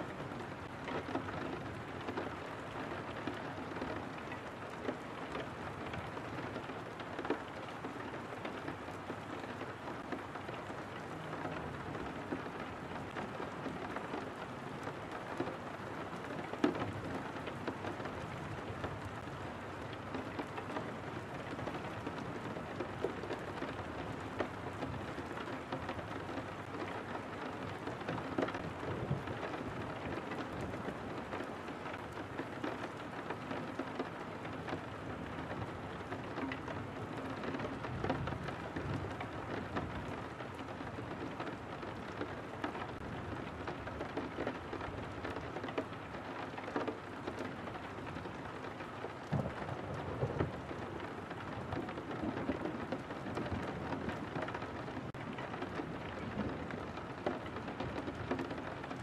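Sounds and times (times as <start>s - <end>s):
rain on a window pane: 0.0s - 59.0s.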